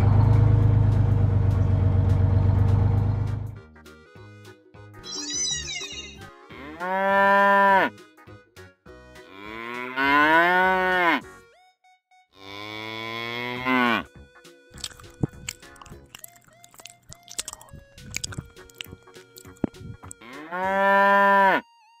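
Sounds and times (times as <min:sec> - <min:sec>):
cow mooing: 0:06.5 - 0:07.9, 0:09.3 - 0:11.2, 0:12.4 - 0:14.1, 0:20.2 - 0:21.6
faint background music: 0:12.4 - 0:22.0.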